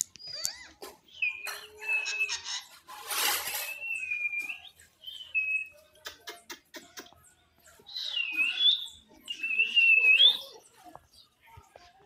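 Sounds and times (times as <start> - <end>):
parakeet whistled calls and chatter: 0.0 - 6.2, 7.7 - 11.4.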